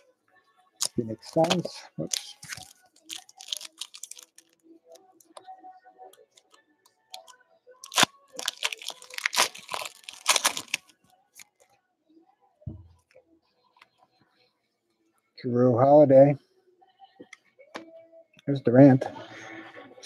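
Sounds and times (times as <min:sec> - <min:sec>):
wrapper tearing and crinkling: 0:00.8 - 0:04.6, 0:07.1 - 0:11.5.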